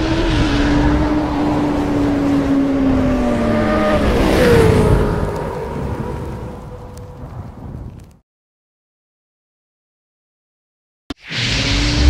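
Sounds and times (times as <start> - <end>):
motorcycle engine: 0.0 - 7.2.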